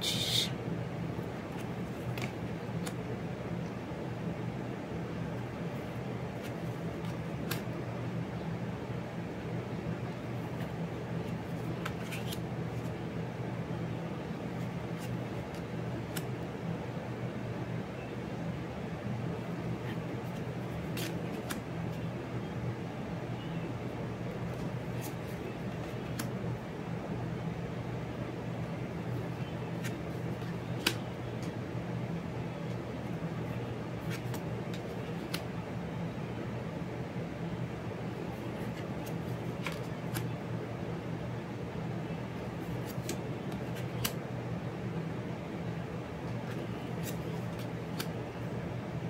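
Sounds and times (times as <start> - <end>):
low background hum: 0.0 - 49.0
card edges clicking: 1.5 - 3.0, 6.4 - 7.8, 10.5 - 12.9, 14.6 - 16.4, 19.7 - 22.1, 24.5 - 26.4, 29.2 - 31.6, 34.0 - 35.5, 38.4 - 40.4, 42.6 - 44.2, 46.3 - 48.3
cards sliding off a deck: 1.5 - 3.0, 6.4 - 7.7, 10.5 - 12.9, 14.6 - 16.3, 19.8 - 22.0, 29.8 - 31.6, 34.0 - 35.5, 38.4 - 40.4, 42.6 - 44.2, 46.4 - 48.2
cards clicking on wooden table: 29.8 - 31.6, 42.7 - 44.2.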